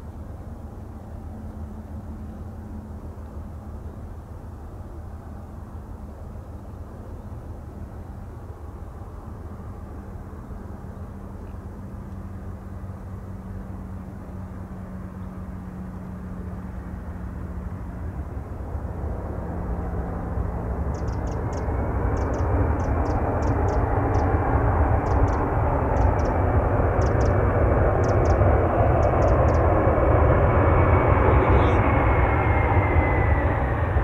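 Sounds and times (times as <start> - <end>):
aircraft engine noise: 0.0 - 34.0
faint high whine: 0.0 - 34.0.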